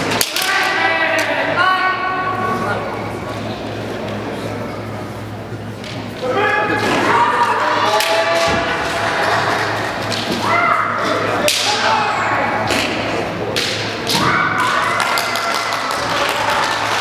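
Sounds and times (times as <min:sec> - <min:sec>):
people yelling: 0:06.2 - 0:09.8, 0:10.4 - 0:12.5, 0:14.1 - 0:17.0.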